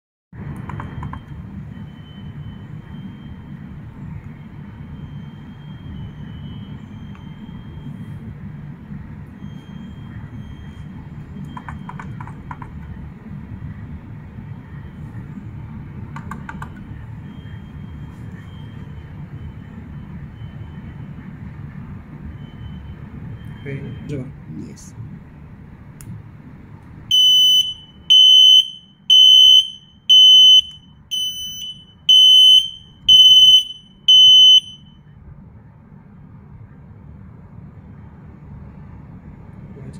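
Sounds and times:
high-pitched alarm beeps: 27.1 - 35.0.

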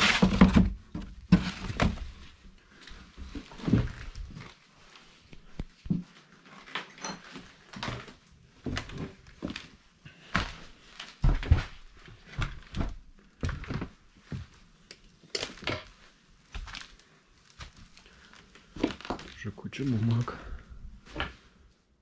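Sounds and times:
footsteps on debris: 16.5 - 20.3.

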